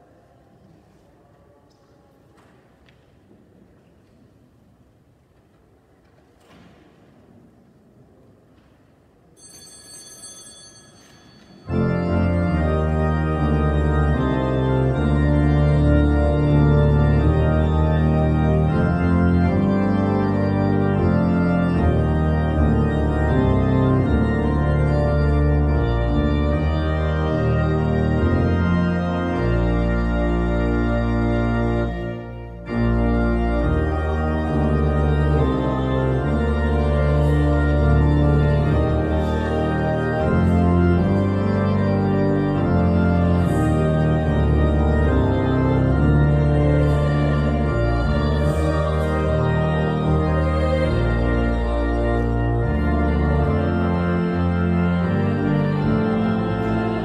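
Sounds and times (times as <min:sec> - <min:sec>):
high ringing tone: 0:09.4 - 0:11.7
church organ chords: 0:09.4 - 0:57.0.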